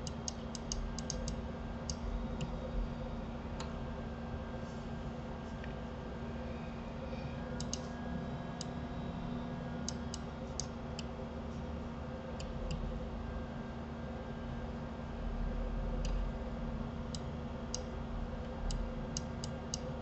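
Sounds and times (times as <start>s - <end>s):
computer mouse clicking: 0.0s - 2.6s, 7.6s - 7.9s
electrical hum: 0.0s - 20.0s.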